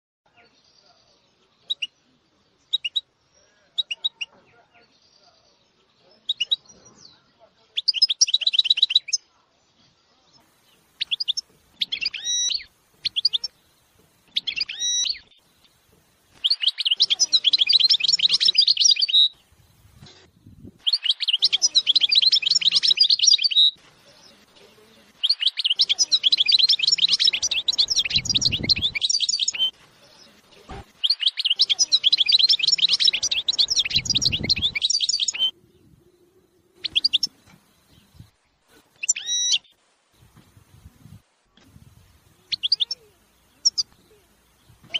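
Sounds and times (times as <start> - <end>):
finch singing rapid trills: 25.2 - 29.7, 31.0 - 35.5.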